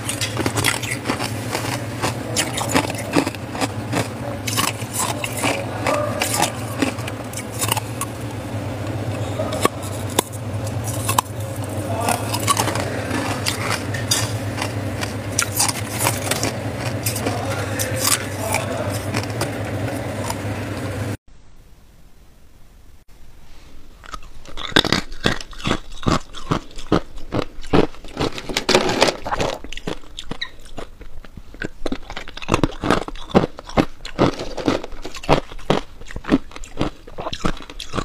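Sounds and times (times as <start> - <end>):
low hum: 0.0 - 26.0.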